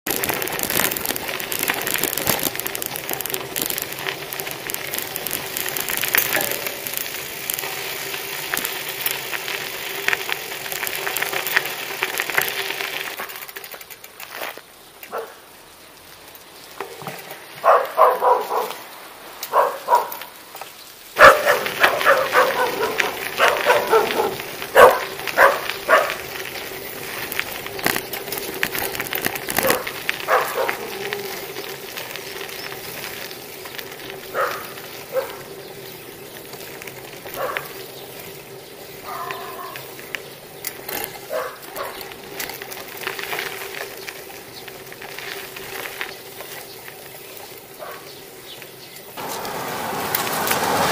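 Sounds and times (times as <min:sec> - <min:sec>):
bicycle rolling on rough road: 0:00.0 - 0:50.9
dogs barking: 0:15.1 - 0:15.4, 0:17.6 - 0:18.9, 0:19.5 - 0:20.3, 0:21.2 - 0:26.4, 0:29.6 - 0:31.3, 0:34.3 - 0:35.6, 0:37.2 - 0:37.8, 0:39.0 - 0:39.9, 0:41.2 - 0:42.1, 0:47.8 - 0:48.2.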